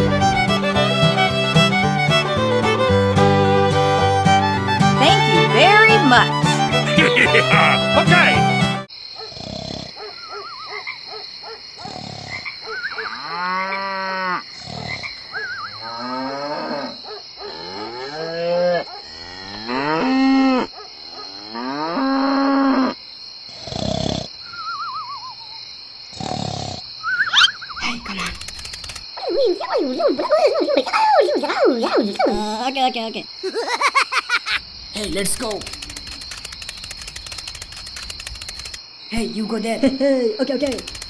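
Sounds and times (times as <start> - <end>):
cows mooing: 13.0 - 14.4, 15.6 - 20.7.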